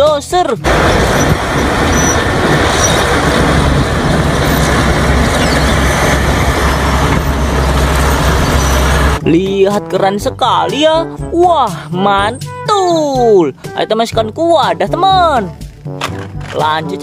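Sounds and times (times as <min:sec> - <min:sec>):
bulldozer diesel engine rumbling: 0:00.6 - 0:09.4.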